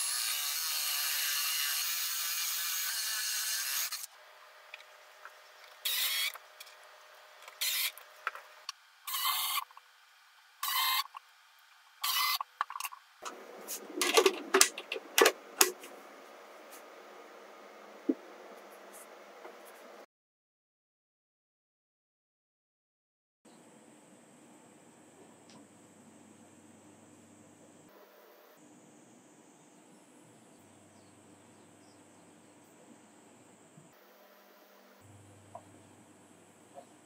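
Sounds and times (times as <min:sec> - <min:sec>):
cordless drill boring wood: 0:00.0 - 0:04.1, 0:05.8 - 0:06.4, 0:07.6 - 0:08.0, 0:09.1 - 0:09.7, 0:10.6 - 0:11.2, 0:12.0 - 0:12.4.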